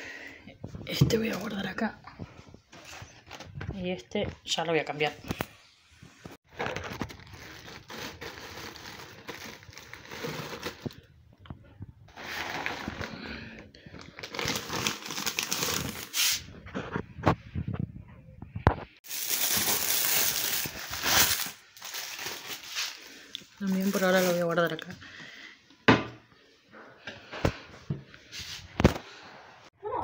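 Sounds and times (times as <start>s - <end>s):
plastic packaging crinkling: 6.5s - 11.1s, 14.0s - 16.4s, 19.0s - 24.8s.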